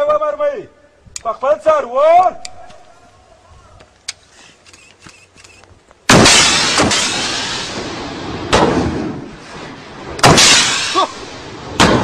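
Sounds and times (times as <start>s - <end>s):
rocket launcher blasts: 6.1s - 12.0s.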